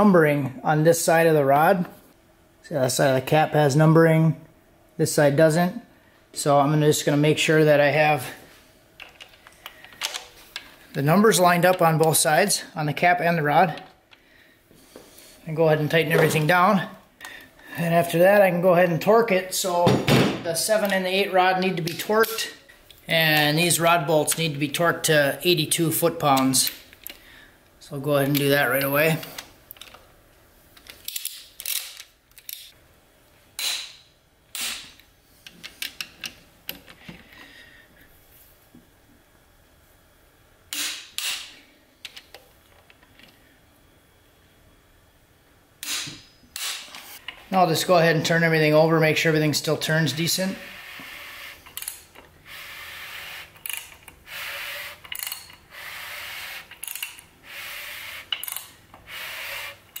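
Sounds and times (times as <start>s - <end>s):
torque wrench clicks: 51.6s - 52.0s, 53.6s - 54.2s, 54.9s - 55.6s, 56.6s - 57.2s, 58.3s - 58.8s
ratchet clicks: 51.6s - 52.1s, 53.2s - 60.0s.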